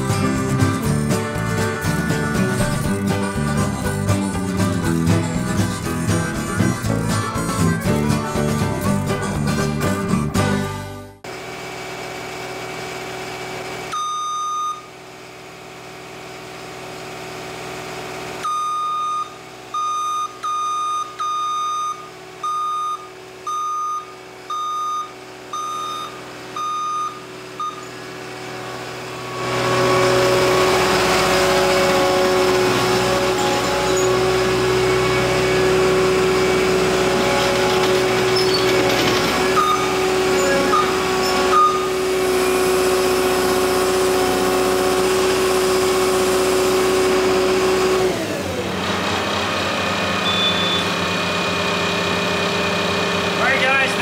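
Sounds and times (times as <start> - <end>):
diesel engine revving: 0.0 - 54.0
backup alarm beeping: 13.9 - 14.9, 18.4 - 28.0, 39.5 - 42.0, 50.2 - 50.9.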